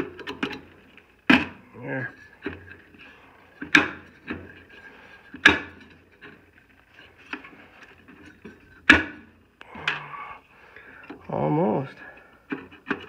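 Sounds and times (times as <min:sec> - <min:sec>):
metal fan wheel clacking: 0:00.0 - 0:10.0.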